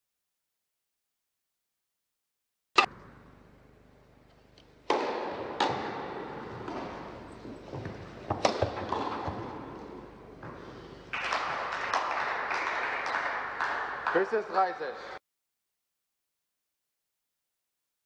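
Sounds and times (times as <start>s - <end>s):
tennis ball hit by racket echoing: 4.8s - 10.6s
tennis ball bouncing: 4.8s - 10.8s.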